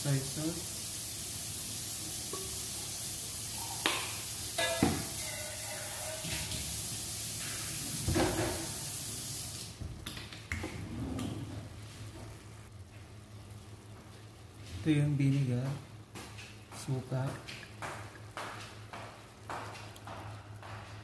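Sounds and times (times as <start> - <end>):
chicken sizzling in a pot: 0.0 - 9.8
metal ladle knocking a pot: 4.6 - 5.5.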